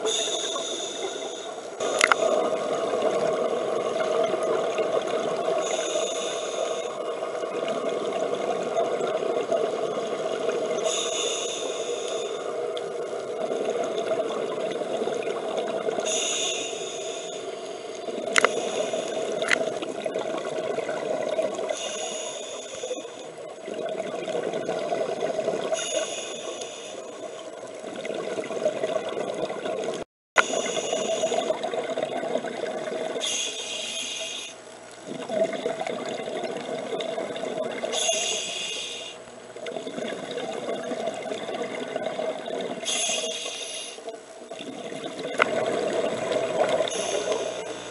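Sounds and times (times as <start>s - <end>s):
regulator inhalation hiss: 0.0s - 2.2s, 5.5s - 7.0s, 10.8s - 12.5s, 16.0s - 19.4s, 21.7s - 23.2s, 25.8s - 27.2s, 30.4s - 31.5s, 33.2s - 34.6s, 37.9s - 39.2s, 42.8s - 44.2s, 46.8s - 47.8s
bubbling underwater: 35.0s - 38.0s, 39.5s - 42.9s, 44.5s - 46.9s.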